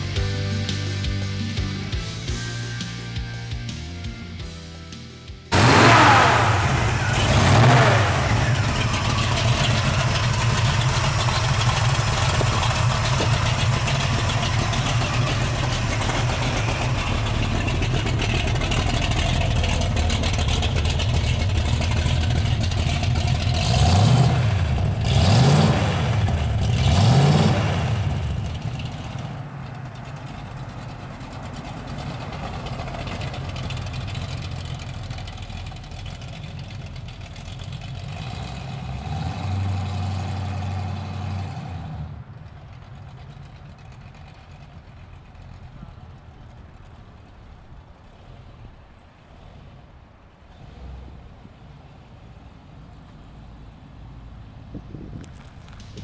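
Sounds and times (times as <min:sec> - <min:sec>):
car engine idling: 0:00.0 - 0:56.0
car engine starting and revving: 0:05.5 - 0:47.4.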